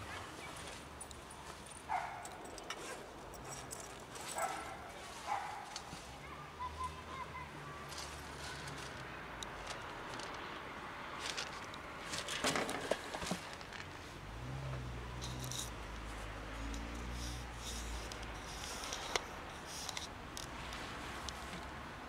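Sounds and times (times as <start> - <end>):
rustling and crackling: 7.8 - 21.8.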